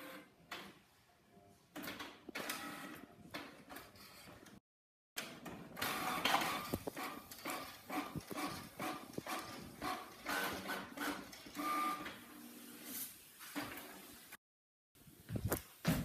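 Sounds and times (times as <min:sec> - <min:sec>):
printer whirring and clacking: 0:05.2 - 0:12.1.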